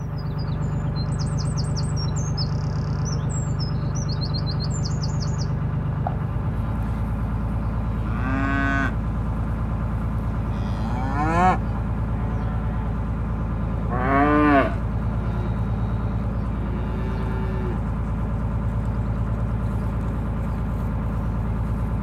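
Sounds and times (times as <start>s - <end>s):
small birds chirping: 0.0s - 8.0s, 15.2s - 21.9s
boat engine humming: 0.0s - 22.0s
cattle mooing: 8.0s - 9.0s, 10.4s - 13.0s, 13.8s - 18.0s.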